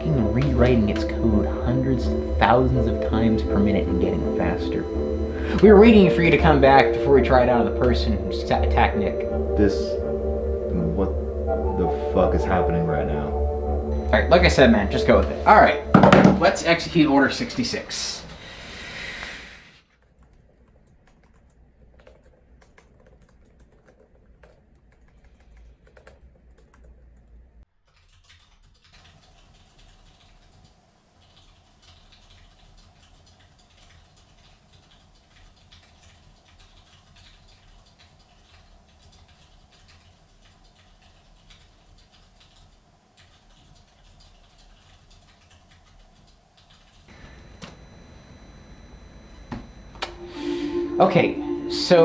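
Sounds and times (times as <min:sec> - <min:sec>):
typing on laptop keyboard: 0:19.9 - 0:47.1.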